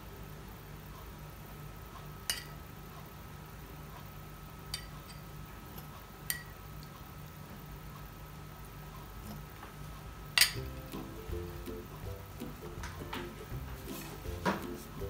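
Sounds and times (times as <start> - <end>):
faint steady hum: 0.0 - 15.0
metal spoon clinking on glass: 10.4 - 10.7.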